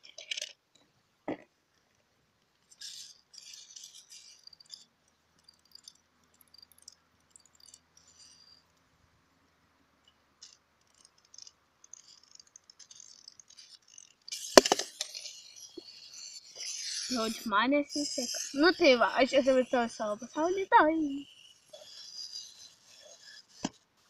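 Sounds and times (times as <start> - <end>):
plastic toy clicking and rattling: 0.0 - 0.8, 1.8 - 8.8, 10.0 - 23.9.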